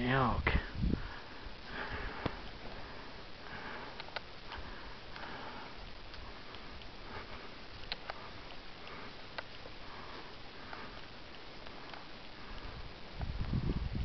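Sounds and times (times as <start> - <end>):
person breathing through nose: 0.7 - 13.8
faint sharp clicks: 2.2 - 2.9, 3.8 - 9.9, 10.6 - 13.6.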